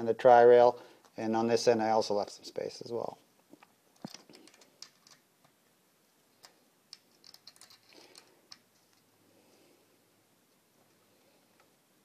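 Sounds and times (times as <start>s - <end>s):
metal clicks and taps: 6.4s - 9.0s.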